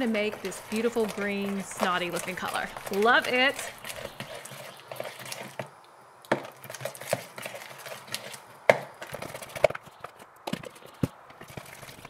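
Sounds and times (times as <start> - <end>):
slime squelching: 0.0 - 5.6, 6.3 - 8.5.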